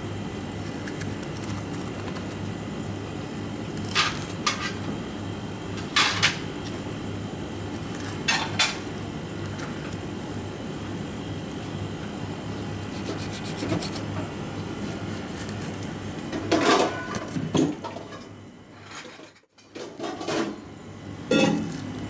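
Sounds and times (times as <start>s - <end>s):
low kitchen hum: 0.0s - 22.0s
knife scraping on cutting board: 12.9s - 14.2s.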